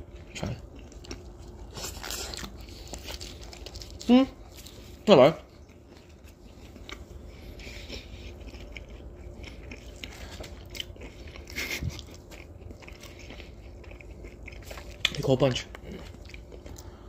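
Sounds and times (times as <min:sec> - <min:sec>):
chewing and crunching food: 0:00.0 - 0:17.0.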